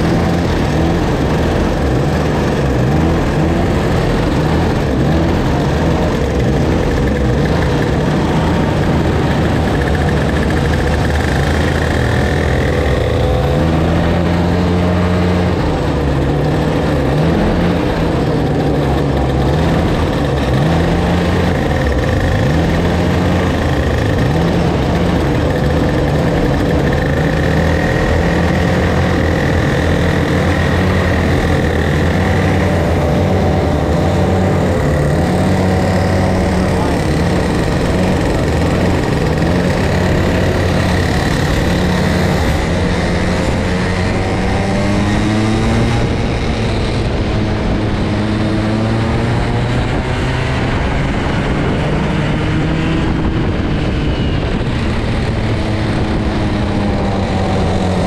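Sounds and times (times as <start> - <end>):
kart engines idling and revving: 0.0 - 58.0.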